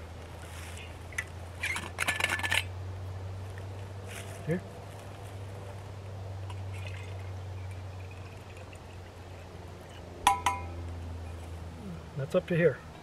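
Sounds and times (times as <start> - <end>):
sharp squeak: 1.6 - 2.6.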